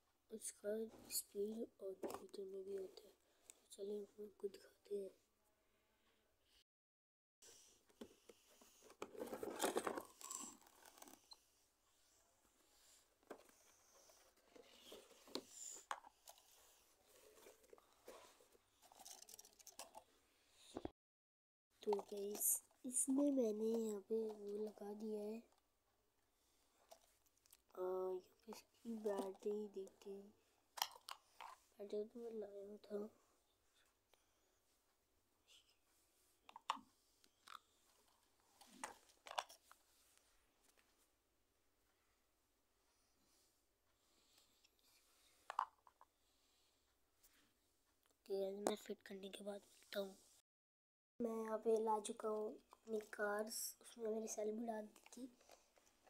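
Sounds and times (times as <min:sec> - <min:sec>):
toy car and box handling: 0:07.9 - 0:11.4, 0:13.2 - 0:20.1, 0:21.8 - 0:25.6, 0:28.5 - 0:30.0, 0:30.8 - 0:31.6, 0:36.5 - 0:39.8, 0:45.4 - 0:46.1, 0:54.8 - 0:56.0
plastic clicks and scrapes: 0:08.0 - 0:11.4, 0:13.2 - 0:20.1, 0:36.5 - 0:39.8.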